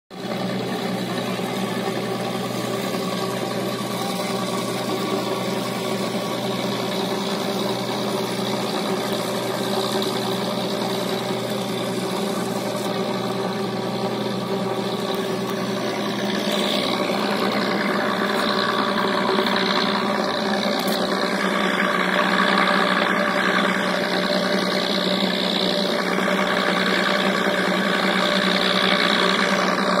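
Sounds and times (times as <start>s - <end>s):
ferry engine droning: 0.1s - 30.0s.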